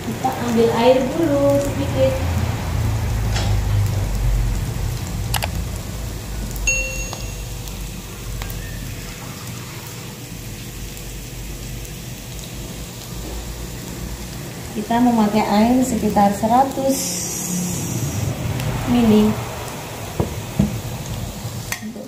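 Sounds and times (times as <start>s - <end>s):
garlic sizzling in hot oil: 0.0s - 22.0s
brief high ding: 6.7s - 7.6s
low rumble: 14.2s - 21.7s.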